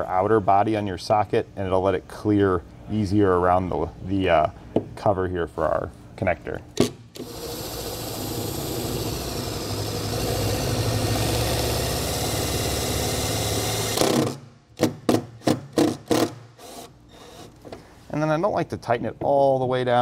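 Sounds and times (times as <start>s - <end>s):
impact driver driving a screw: 6.8s - 17.6s.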